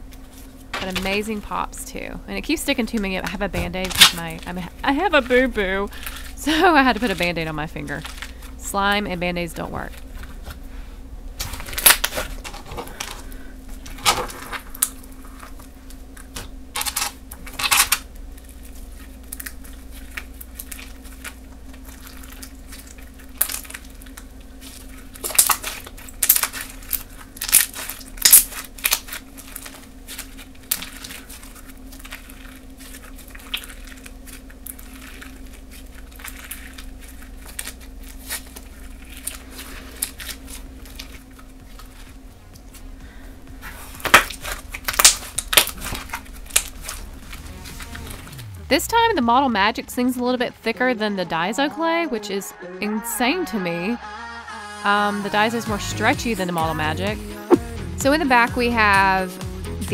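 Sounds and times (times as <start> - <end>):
slime squishing with pops: 19.0 - 42.8, 43.6 - 47.1.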